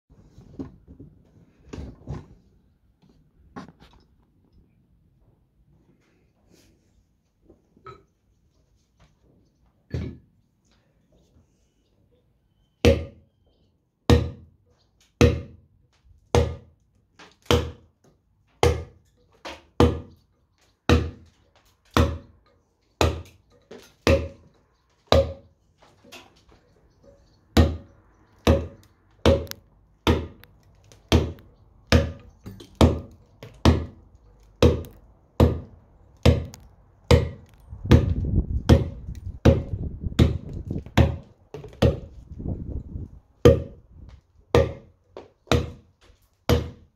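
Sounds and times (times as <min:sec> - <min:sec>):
mallet striking chisel into stone: 0:31.1 - 0:34.0, 0:43.5 - 0:43.8, 0:44.5 - 0:44.9.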